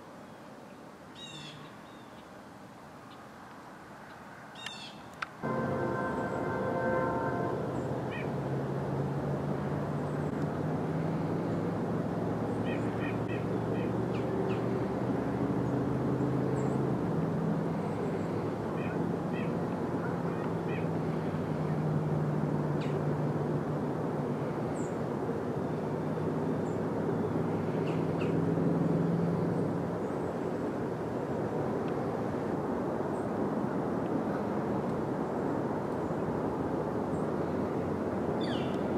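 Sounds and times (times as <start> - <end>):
constant hiss: 0.0 - 10.8
low hum: 5.4 - 12.5.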